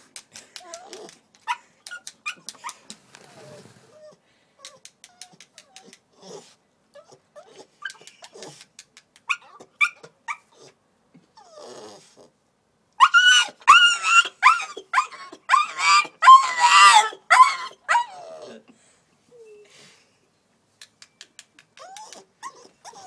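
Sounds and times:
puppy whimpering and crying: 0.6s - 8.5s, 9.3s - 10.8s, 11.4s - 12.3s, 13.0s - 18.7s, 21.7s - 23.0s
small sharp clicks: 7.9s - 9.3s, 20.8s - 22.3s.

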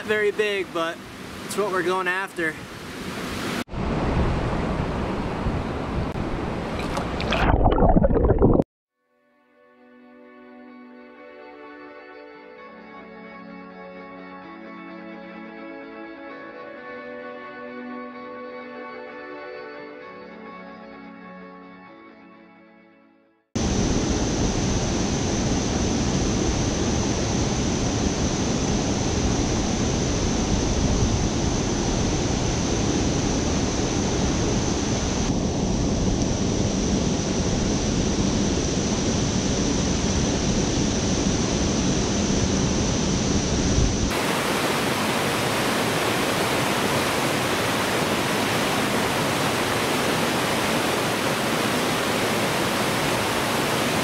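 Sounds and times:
water rushing over cascades: 0.0s - 3.6s, 44.1s - 54.0s.

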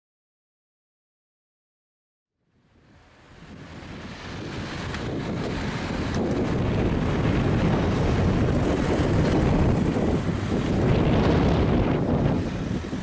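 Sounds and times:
cars driving past: 2.8s - 13.0s
wind buffeting microphone: 2.8s - 13.0s.

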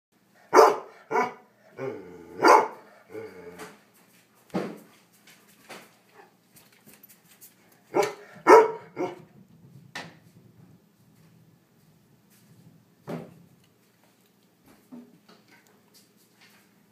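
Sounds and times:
dog barking: 0.5s - 2.9s, 7.9s - 9.2s.

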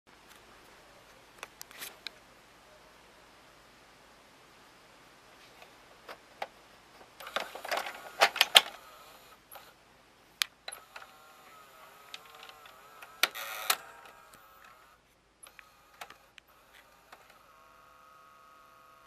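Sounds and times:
cassette mechanism clicks and clunks: 7.2s - 8.9s, 11.9s - 14.9s
loading motor whining: 7.2s - 9.8s, 10.7s - 19.0s.

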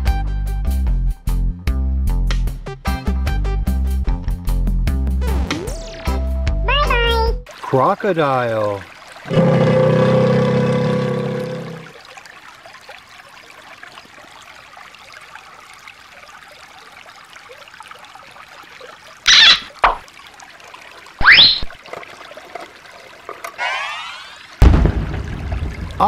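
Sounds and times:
stream trickling over stones: 6.7s - 26.0s
rising swoop: 23.6s - 24.6s
falling swoop: 23.6s - 24.7s.

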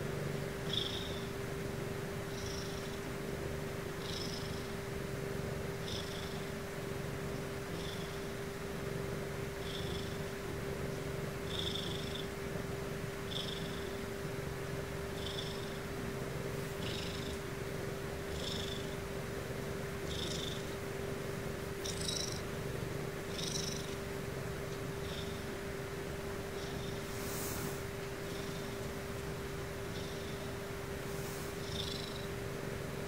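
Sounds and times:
cat purring: 0.0s - 33.0s
high nasal breathing sound: 27.0s - 28.6s.

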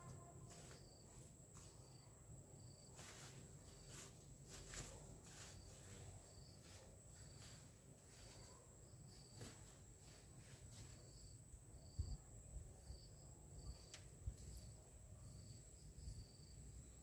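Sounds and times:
leaves and stems rustling: 2.6s - 11.3s
insect trill: 10.8s - 17.0s.

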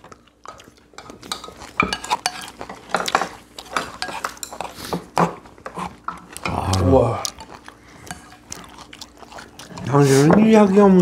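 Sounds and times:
cutlery clinking against bowls: 0.5s - 6.7s.

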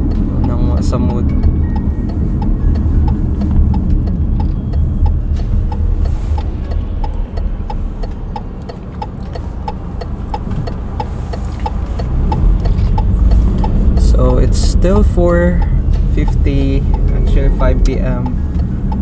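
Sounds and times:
car driving rumble inside cabin: 0.0s - 19.0s
turn signal ticking: 0.0s - 19.0s.

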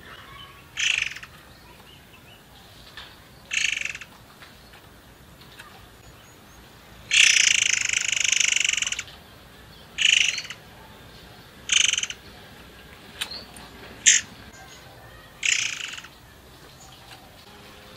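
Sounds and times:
bird trilling: 0.0s - 2.4s, 3.2s - 4.2s, 5.6s - 9.2s, 9.8s - 11.0s, 11.6s - 12.4s, 13.2s - 17.4s
short bird calls: 0.0s - 4.6s, 7.1s - 9.2s, 10.0s - 12.4s, 13.2s - 17.4s.

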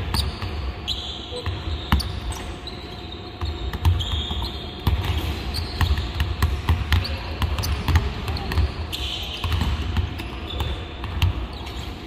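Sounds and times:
basketballs bouncing on hardwood: 1.4s - 2.4s, 3.4s - 11.6s.

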